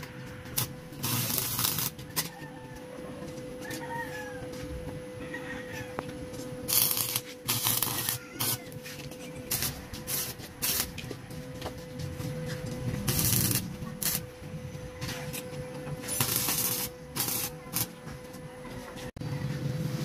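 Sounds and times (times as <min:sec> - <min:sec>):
welding arc crackling: 0:00.0 - 0:02.4, 0:06.0 - 0:18.4.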